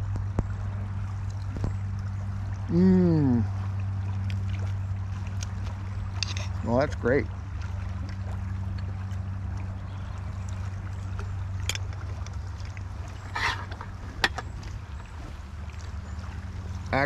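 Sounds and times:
river flowing: 0:00.0 - 0:17.0.

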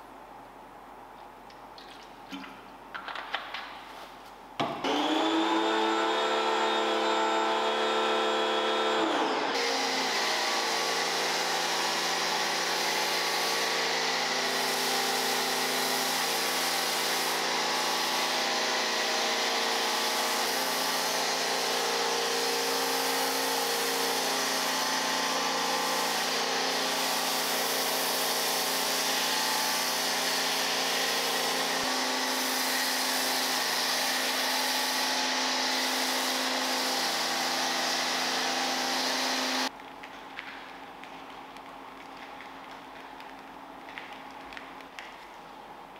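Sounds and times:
vacuum cleaner motor whining: 0:04.8 - 0:39.7.

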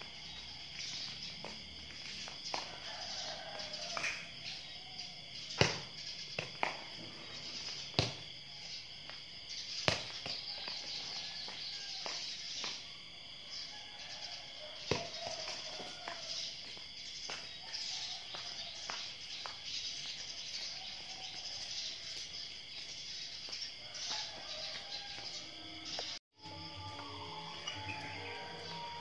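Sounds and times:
insects chirring: 0:00.0 - 0:29.0
ball bouncing on tiles: 0:05.6 - 0:07.0, 0:09.8 - 0:12.8.

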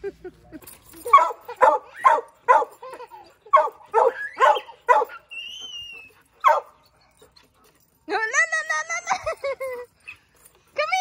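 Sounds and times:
dog barking: 0:01.1 - 0:02.7, 0:03.5 - 0:05.2, 0:06.4 - 0:06.8.

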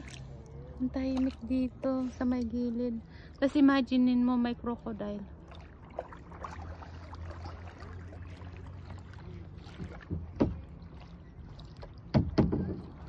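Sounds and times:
paddle strokes in water: 0:00.0 - 0:02.4, 0:05.2 - 0:13.0.

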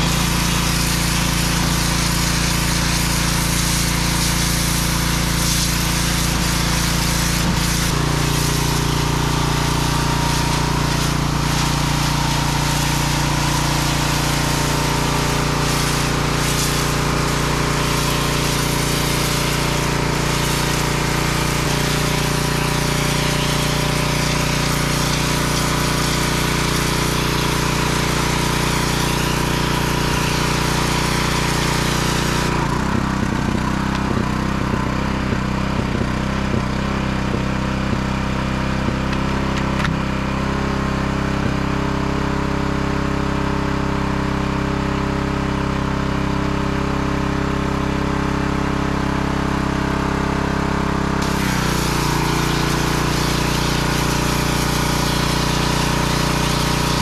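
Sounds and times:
water jet spraying hiss: 0:00.0 - 0:37.0, 0:51.2 - 0:57.0
pressure washer engine running: 0:00.0 - 0:57.0.

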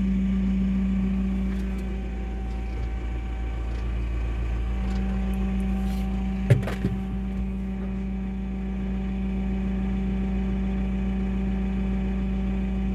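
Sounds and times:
diesel engine idling: 0:00.0 - 0:12.9.

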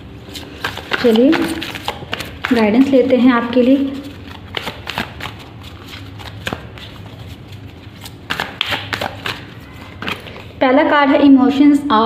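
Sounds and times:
cards being shuffled: 0:00.3 - 0:03.0, 0:03.6 - 0:10.6.

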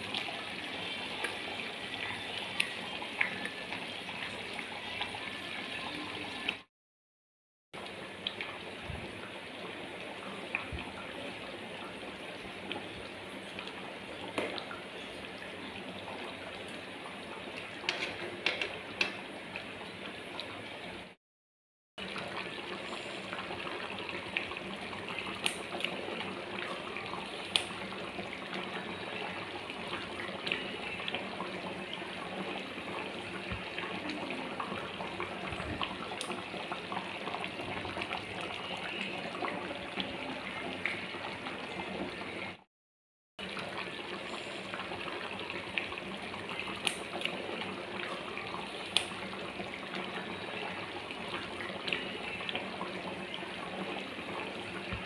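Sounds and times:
gravy simmering in a pan: 0:00.0 - 0:06.6, 0:22.0 - 0:42.6, 0:43.4 - 0:55.0.

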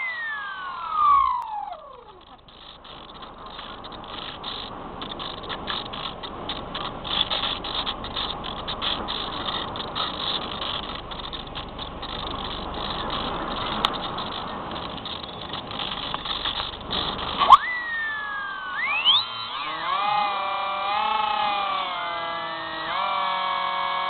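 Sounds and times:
model plane motor and airflow hiss: 0:00.0 - 0:24.0.

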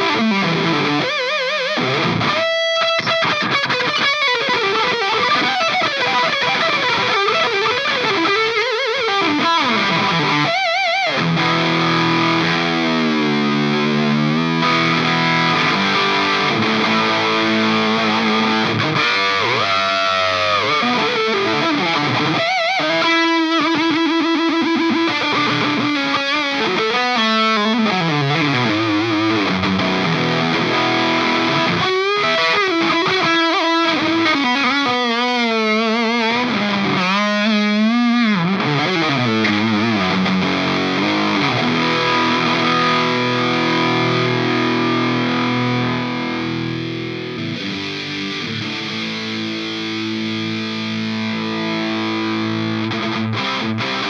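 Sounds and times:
distorted electric guitar lead: 0:00.0 - 0:54.0.

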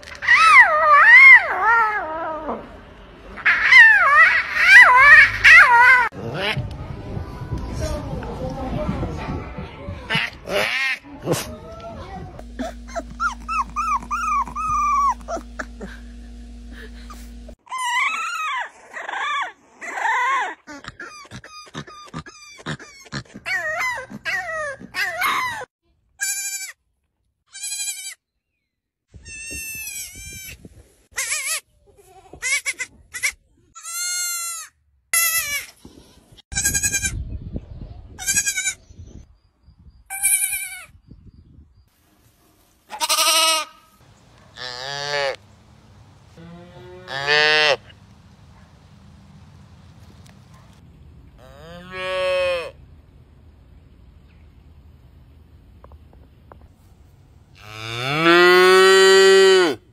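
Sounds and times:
puppy yipping and howling: 0:00.1 - 0:02.6, 0:03.4 - 0:06.1, 0:12.9 - 0:15.7, 0:17.7 - 0:22.6, 0:23.5 - 0:25.7
goat kid bleating: 0:26.2 - 0:26.8, 0:27.5 - 0:28.2, 0:29.2 - 0:37.2, 0:38.2 - 0:38.8, 0:40.1 - 0:40.9, 0:42.9 - 0:44.0, 0:47.0 - 0:47.8, 0:51.5 - 0:52.8.

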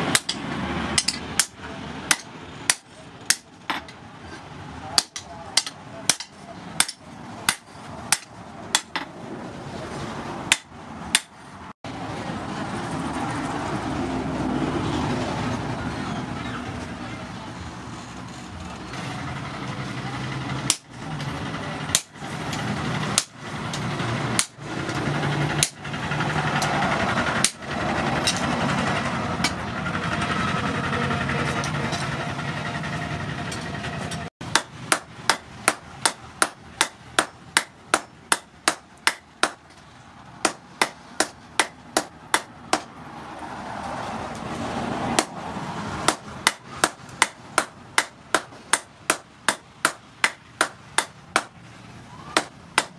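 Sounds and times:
hammer striking metal on anvil: 0:00.1 - 0:04.0, 0:04.9 - 0:09.1, 0:10.5 - 0:11.4, 0:34.5 - 0:39.8, 0:40.4 - 0:42.9, 0:46.1 - 0:51.6, 0:52.4 - 0:52.9.

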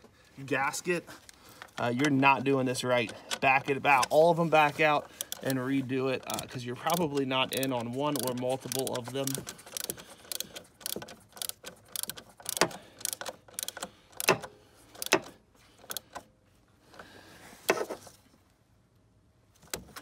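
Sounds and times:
hand ratchet clicking: 0:05.0 - 0:05.6, 0:06.2 - 0:16.3.

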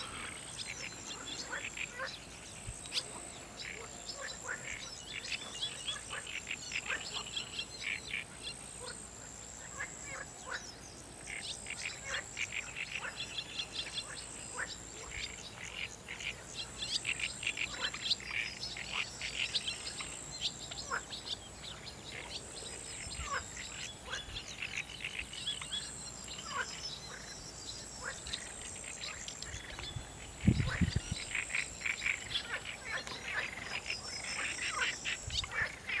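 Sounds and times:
birds chirping and calling: 0:00.0 - 0:36.0
frogs calling: 0:00.0 - 0:36.0.

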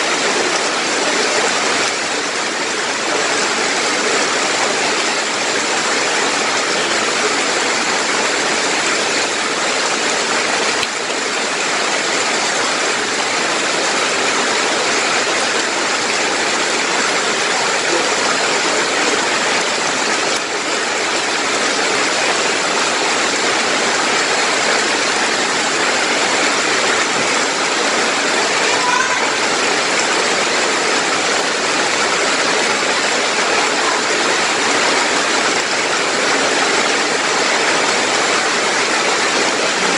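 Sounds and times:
heavy rain on leaves: 0:00.0 - 0:39.9.

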